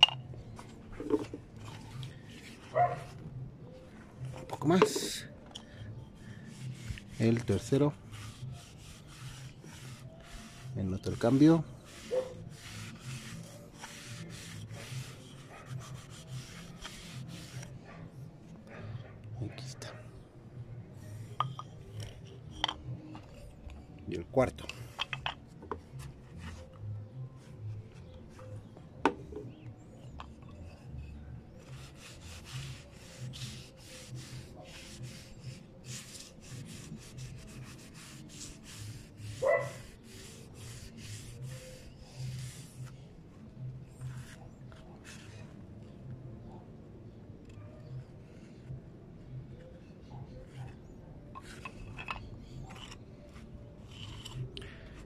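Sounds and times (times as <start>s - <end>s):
gloved hand rubbing wood: 0.5s - 5.3s, 5.9s - 18.9s, 21.0s - 28.8s, 29.4s - 46.0s.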